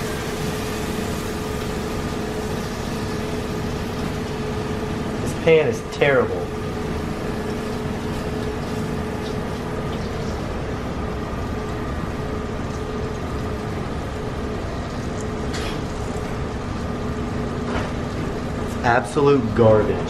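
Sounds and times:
fish sizzling in butter: 0.0 - 5.9
kitchen ventilation hum: 0.0 - 20.0.

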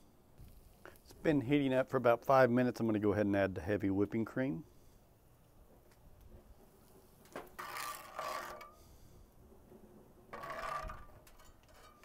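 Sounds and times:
metal spatula scraping a skillet: 7.5 - 9.1, 10.3 - 12.0.

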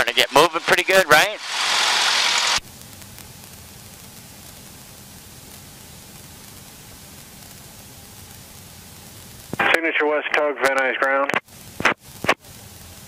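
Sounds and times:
headset intercom hiss: 0.0 - 2.6, 9.0 - 13.0.

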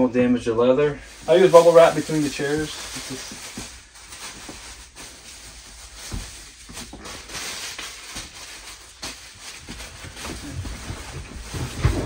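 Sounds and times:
bubble wrap crinkling: 1.0 - 12.0.

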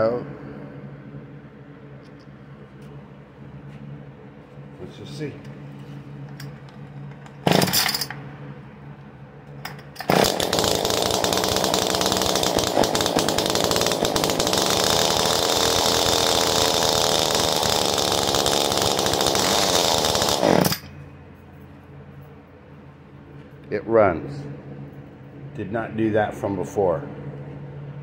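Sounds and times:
hedge trimmer engine starting: 10.0 - 20.8.

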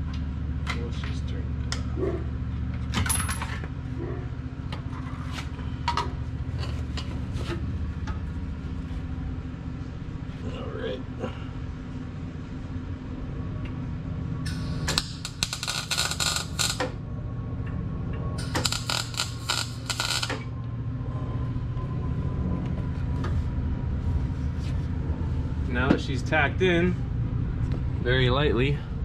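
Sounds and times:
welding arc crackling: 14.5 - 16.9, 18.4 - 20.5.

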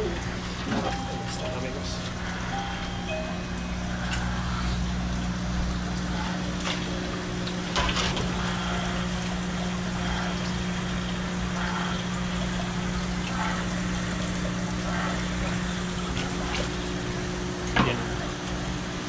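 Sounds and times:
trickling water: 0.0 - 19.0
water pumps humming: 0.0 - 19.0.

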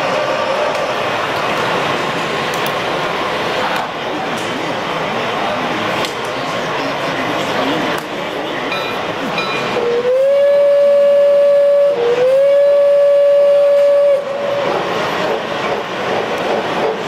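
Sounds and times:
steam locomotive whistle: 9.7 - 14.8.

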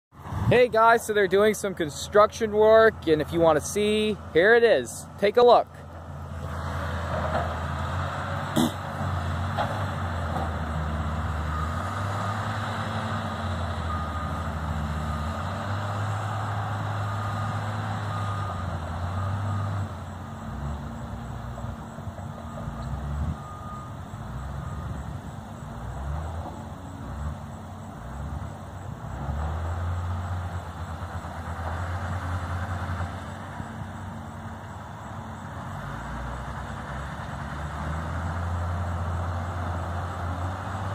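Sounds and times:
diesel machinery engine drone: 0.1 - 40.9
faint reversing beeps: 10.7 - 25.5.

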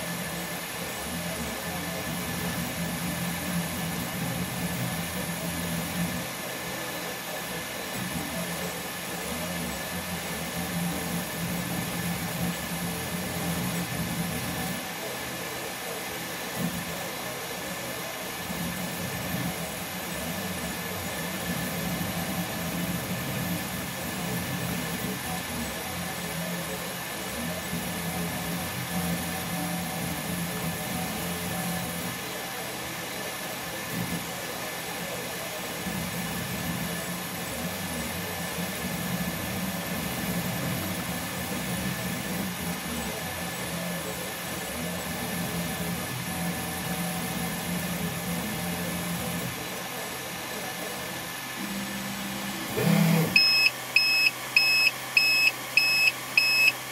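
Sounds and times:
fan whir: 0.0 - 56.9
stepper motors buzzing: 51.6 - 56.9.

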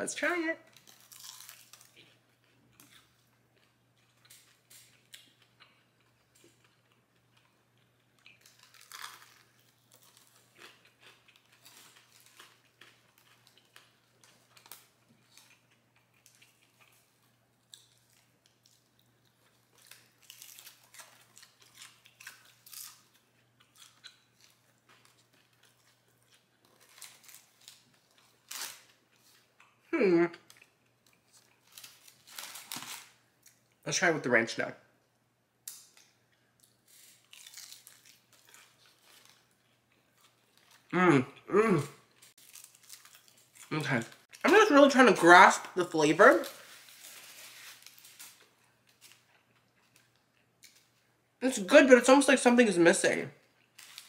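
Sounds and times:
chewing crispy chicken: 0.6 - 33.8, 35.7 - 51.3.

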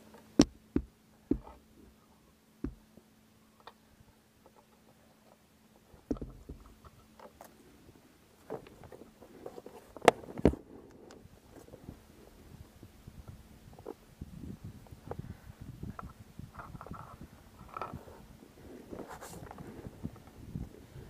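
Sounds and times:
loud knocks: 0.4 - 1.6, 2.6 - 2.8.

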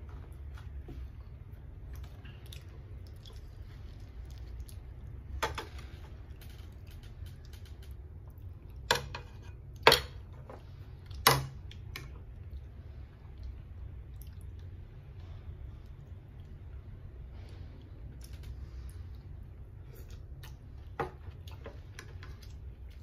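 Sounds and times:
soft chewing: 0.1 - 9.8, 10.5 - 23.0.

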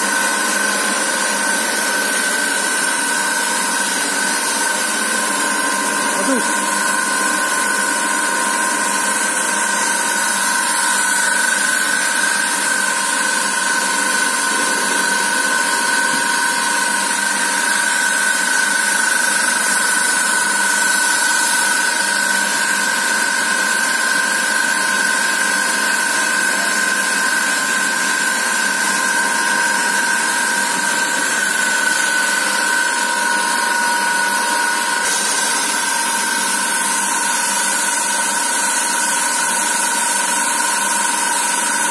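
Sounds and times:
machine hum with high whine: 0.0 - 41.9.

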